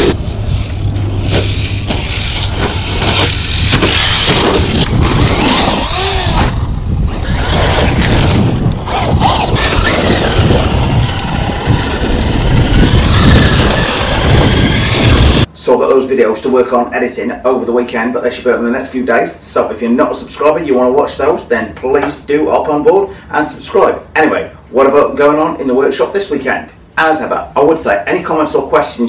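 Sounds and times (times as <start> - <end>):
rc car motors whining: 0.0 - 15.5
tyre noise: 0.0 - 15.5
wind noise: 0.0 - 15.5.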